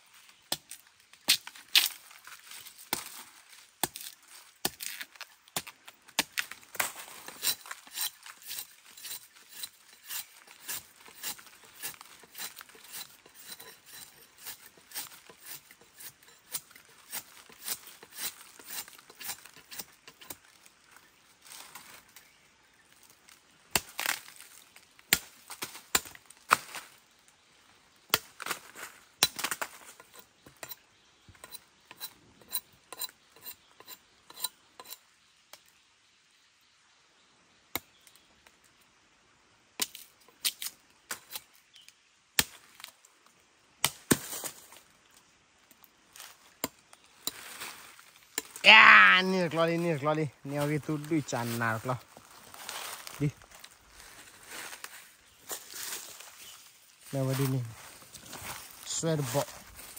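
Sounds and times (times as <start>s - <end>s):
machete chopping bamboo: 3.8s - 20.4s, 23.7s - 24.4s, 25.1s - 26.8s, 29.2s - 30.8s, 42.4s - 42.9s, 43.8s - 44.6s.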